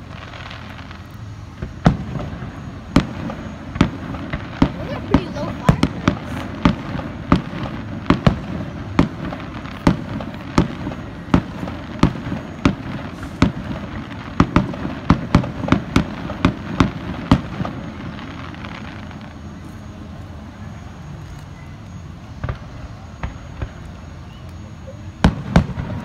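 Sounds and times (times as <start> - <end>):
firework shells bursting: 0.0 - 20.0.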